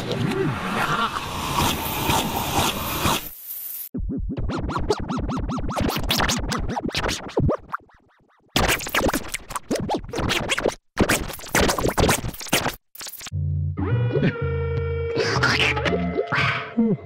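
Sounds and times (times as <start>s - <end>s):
record scratch effect: 3.9s - 7.8s, 8.6s - 13.3s, 15.2s - 16.4s
stuttering remixed voice clip: 15.2s - 17.0s.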